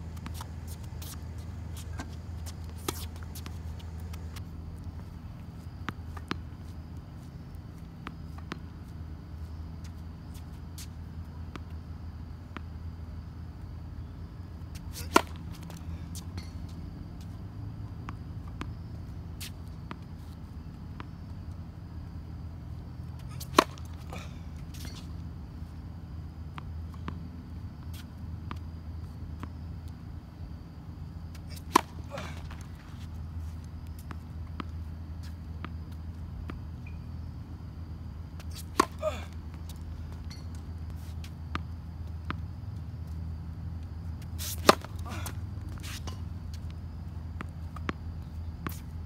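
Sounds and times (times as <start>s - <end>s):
steady low hum: 0.0s - 49.0s
shoe scuff: 0.1s - 4.4s, 14.8s - 16.6s, 23.3s - 25.1s, 44.3s - 46.2s
tennis ball bouncing on hard court: 0.1s - 4.4s, 14.7s - 16.8s, 23.2s - 24.1s, 31.4s - 33.1s, 38.4s - 40.6s, 44.4s - 46.7s
racket striking ball: 14.8s - 15.8s, 23.3s - 24.2s, 31.5s - 32.8s, 38.4s - 39.2s, 44.4s - 46.3s.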